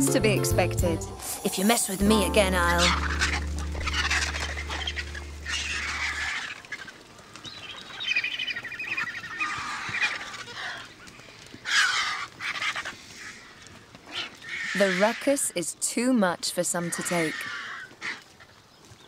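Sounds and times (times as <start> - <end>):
low steady tone: 2.0 - 6.1
vultures squabbling harsh calls: 2.3 - 15.7, 16.6 - 18.6.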